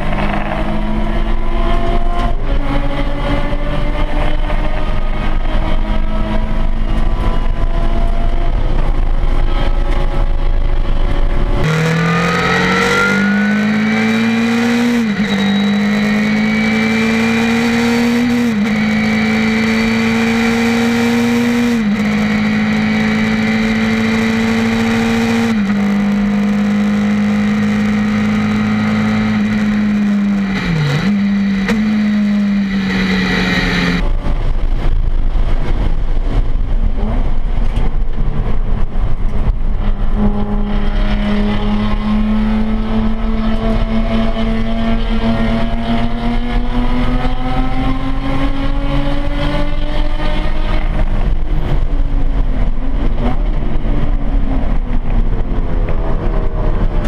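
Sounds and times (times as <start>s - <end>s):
race car engine at full throttle: 0.0s - 57.0s
road noise: 0.0s - 57.0s.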